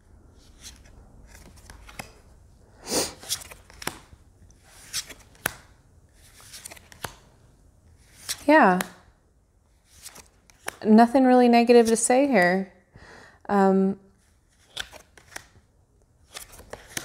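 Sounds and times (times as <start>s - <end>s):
cards laid onto a pile: 4.8s - 5.7s, 16.3s - 17.0s.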